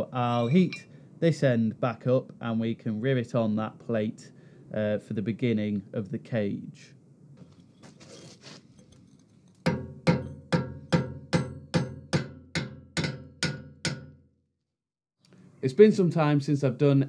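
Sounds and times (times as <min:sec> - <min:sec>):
hammer blows ringing on steel: 0:09.7 - 0:14.1.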